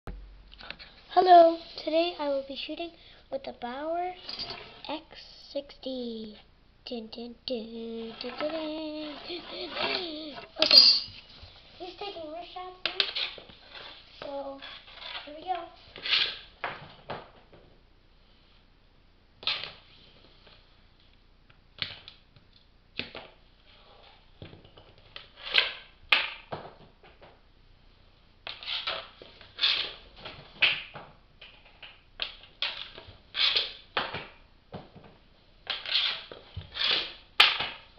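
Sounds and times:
hockey stick striking puck: 0:36.8 - 0:37.8.

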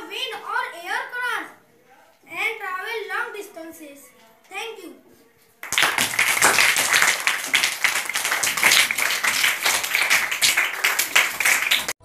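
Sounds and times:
children clapping: 0:05.6 - 0:12.0.

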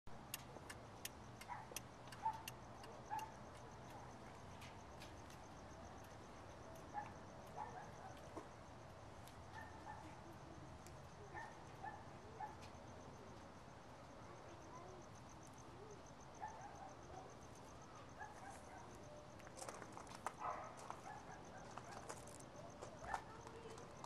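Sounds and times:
faint ticking clicks: 0:00.1 - 0:08.3.

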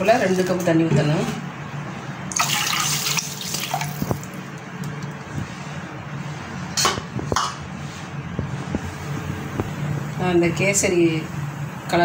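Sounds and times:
water poured into pan: 0:02.4 - 0:04.1.

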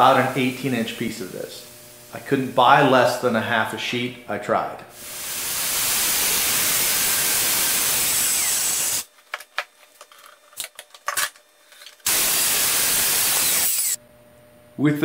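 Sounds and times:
circular saw cutting: 0:05.0 - 0:09.1, 0:12.1 - 0:14.0.

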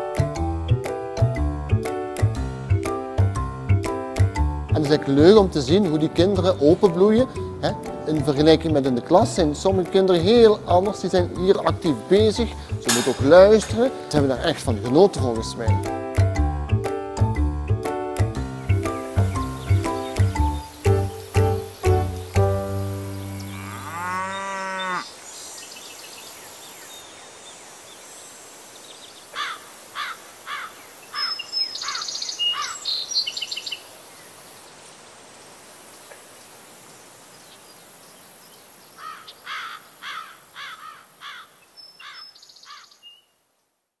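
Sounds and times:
steady outdoor hiss: 0:00.0 - 0:44.0
birds chirping: 0:18.4 - 0:28.1, 0:28.8 - 0:34.9, 0:35.9 - 0:43.4
cow mooing: 0:23.0 - 0:25.1.

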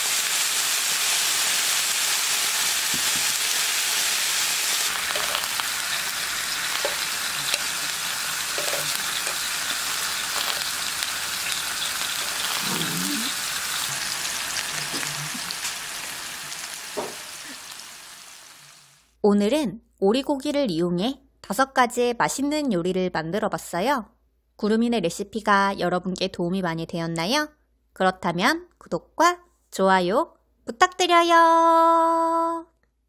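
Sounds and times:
food sizzling on a griddle: 0:00.0 - 0:19.1.

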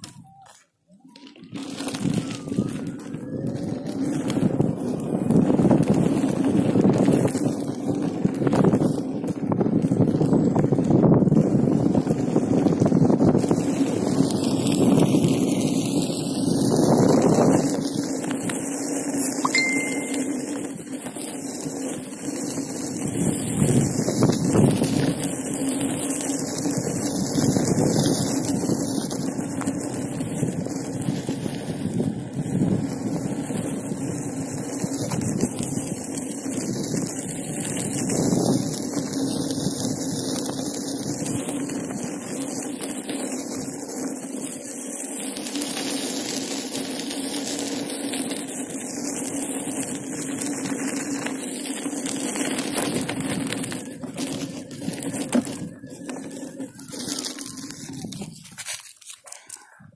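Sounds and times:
electric unicycle hum: 0:01.2 - 0:59.2
wind on microphone: 0:01.4 - 0:18.6, 0:22.8 - 0:25.5, 0:26.4 - 0:42.1, 0:52.5 - 0:58.7
tyre rolling on gravel: 0:01.5 - 0:59.5.

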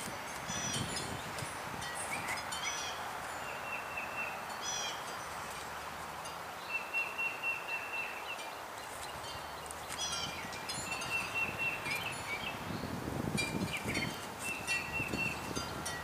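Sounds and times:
birds chirping: 0:00.0 - 0:16.0
steady outdoor hiss: 0:00.0 - 0:16.0
bird trill: 0:01.9 - 0:05.1, 0:09.3 - 0:12.6, 0:13.6 - 0:16.0.

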